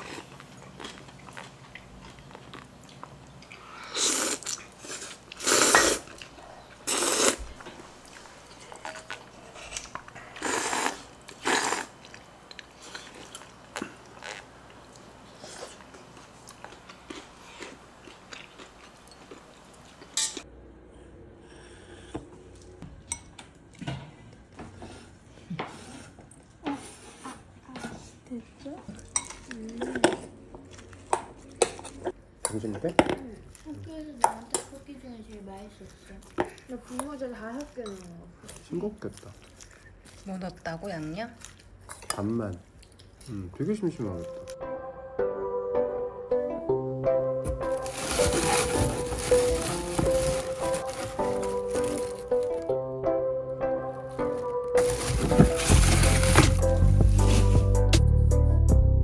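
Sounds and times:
quiet chewing: 0:00.0 - 0:20.2, 0:33.2 - 0:43.5
person slurping broth: 0:03.8 - 0:06.1, 0:06.9 - 0:07.4, 0:10.4 - 0:12.0.

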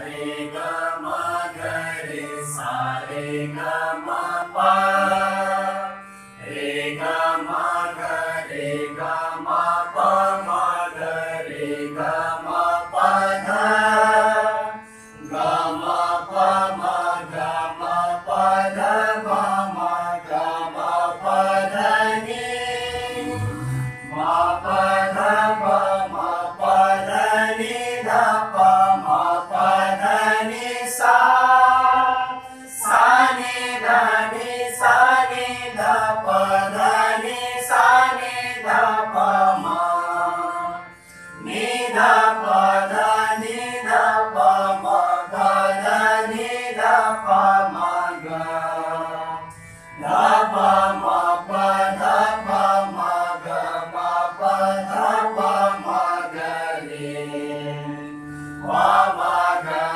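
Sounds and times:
group singing in unison: 0:00.0 - 0:59.9
harmonium: 0:00.0 - 0:59.9.

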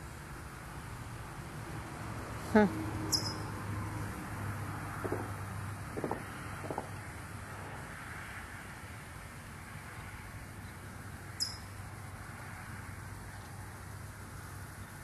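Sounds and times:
outdoor background noise: 0:00.0 - 0:15.0
short high chirp: 0:03.1 - 0:03.4.

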